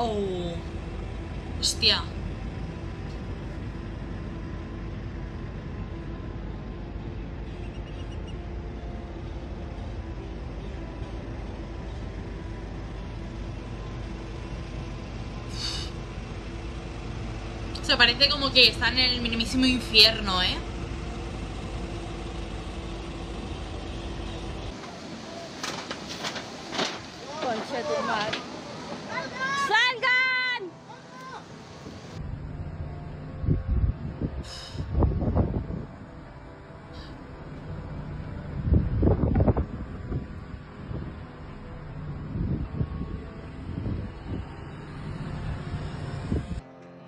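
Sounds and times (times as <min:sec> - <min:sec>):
low rumble: 0:00.0 - 0:24.8, 0:32.0 - 0:46.6
wildfire crackling and popping: 0:24.2 - 0:28.5
wind rumble on microphone: 0:31.8 - 0:36.4, 0:37.4 - 0:46.6.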